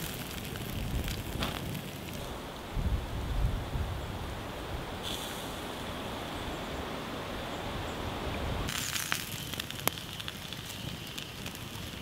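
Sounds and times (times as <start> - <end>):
campfire crackling and popping: 0.0 - 2.6, 8.3 - 12.0.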